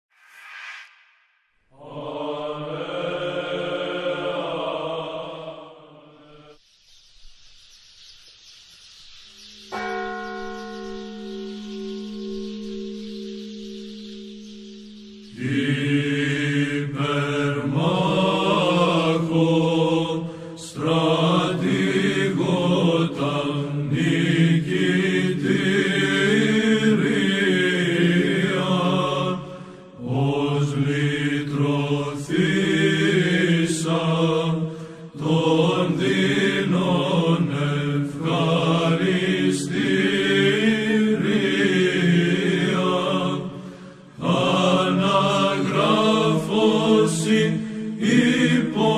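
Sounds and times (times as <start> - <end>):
low vocal drone: 1.7 - 6.6, 15.3 - 48.9
voices chanting a hymn: 1.7 - 6.6, 15.3 - 48.9.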